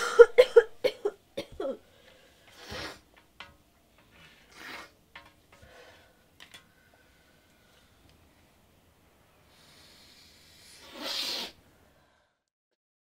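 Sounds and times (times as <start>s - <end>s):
person sniffing hard: 2.5s - 3.1s, 4.4s - 5.0s, 9.5s - 11.6s.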